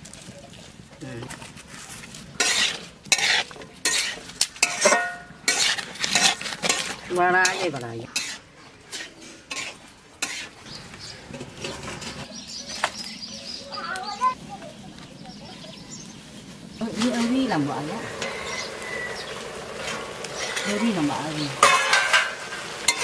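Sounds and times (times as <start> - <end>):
light sizzle: 0.0 - 23.0
metal spatula scraping wok: 1.4 - 13.0, 16.8 - 23.0.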